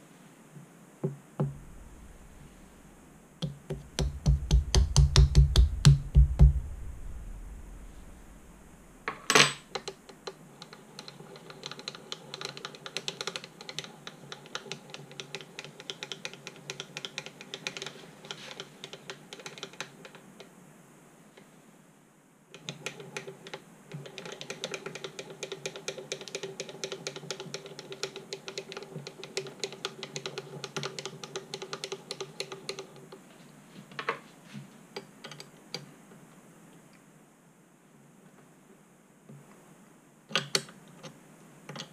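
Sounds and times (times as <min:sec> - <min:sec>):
mill table handwheel cranking: 0:10.7 - 0:17.9.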